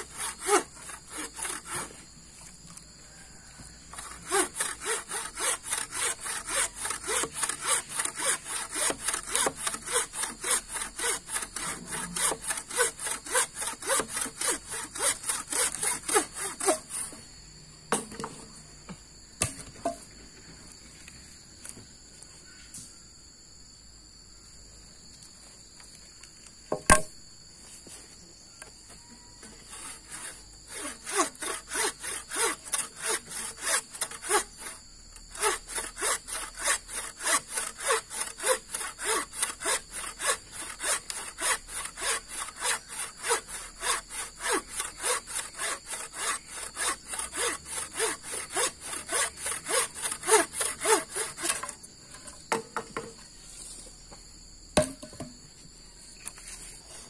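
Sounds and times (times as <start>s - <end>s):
hand saw cutting: 0.0s - 2.8s, 3.8s - 17.2s, 29.4s - 52.6s
insect chorus: 0.0s - 57.0s
sharp knock: 26.7s - 27.1s, 54.8s - 55.4s.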